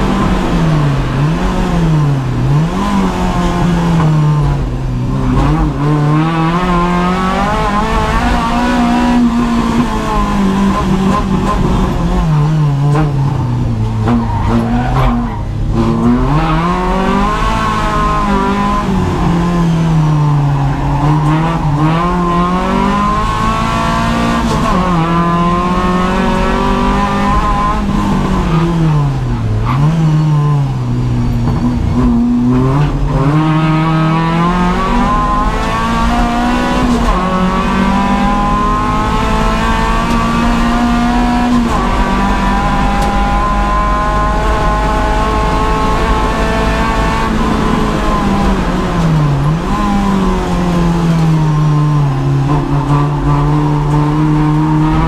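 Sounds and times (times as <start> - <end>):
car engine at full load: 0.0 - 55.0.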